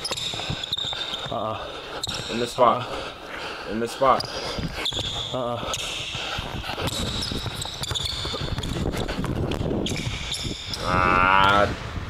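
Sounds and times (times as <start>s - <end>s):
basketball bouncing on wooden floor: 0.0s - 1.4s, 4.2s - 10.8s.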